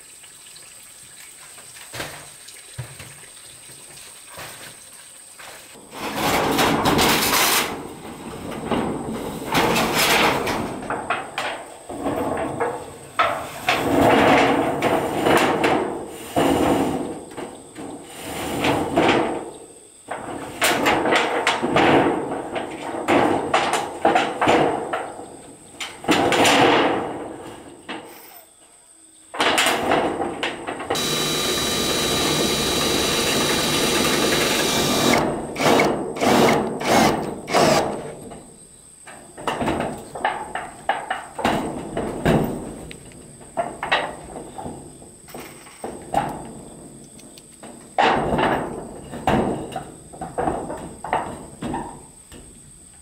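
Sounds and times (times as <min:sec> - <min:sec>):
metal roofing sheets clattering: 0:05.9 - 0:16.9.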